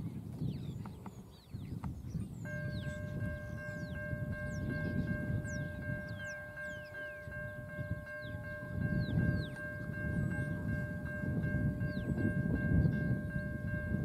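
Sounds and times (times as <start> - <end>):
birds chirping: 0.0 - 14.0
crossing warning bell ringing: 2.5 - 14.0.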